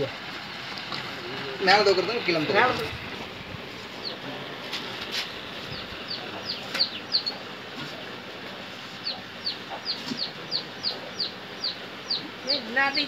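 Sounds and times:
bird chirping: 5.7s - 7.5s, 9.0s - 13.0s.

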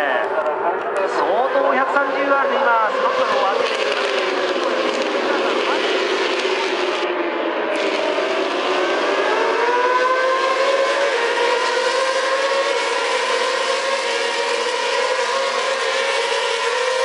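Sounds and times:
racing motorcycles accelerating: 0.0s - 17.0s.

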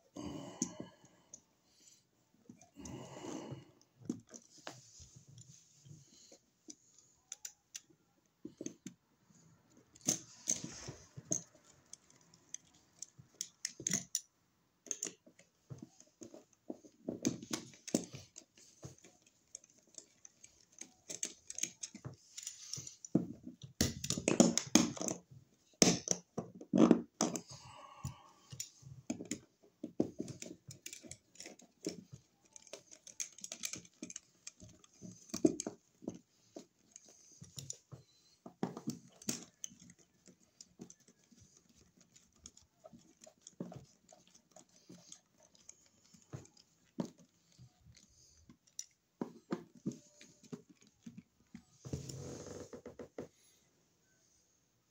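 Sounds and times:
screwdriver clicks and scrapes: 9.9s - 25.2s, 28.5s - 52.5s.

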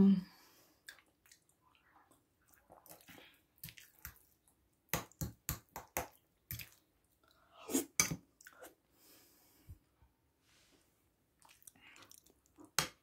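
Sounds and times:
wet chewing and lip smacks: 0.8s - 4.6s, 11.4s - 12.8s.

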